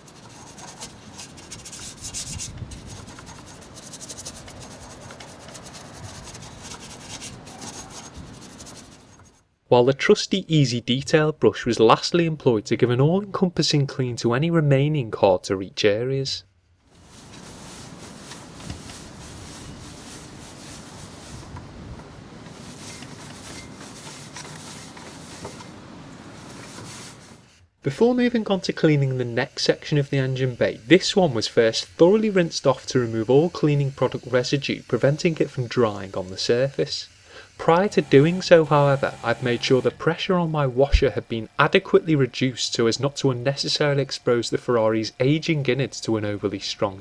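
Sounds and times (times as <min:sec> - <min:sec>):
brush scrubbing metal parts: 0:00.0 - 0:09.5, 0:16.9 - 0:21.6, 0:22.2 - 0:41.0.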